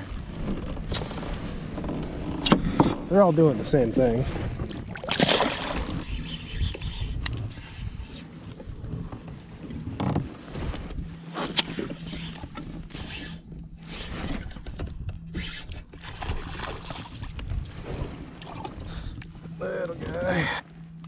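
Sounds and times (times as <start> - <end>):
fish splashing: 4.9 - 6.1
reel clicks: 5.9 - 7.8.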